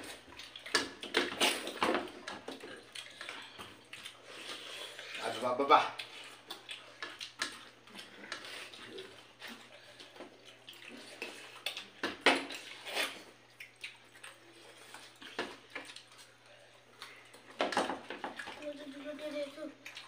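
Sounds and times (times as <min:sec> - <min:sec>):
wet squelches of food chewed: 0:00.0 - 0:20.0.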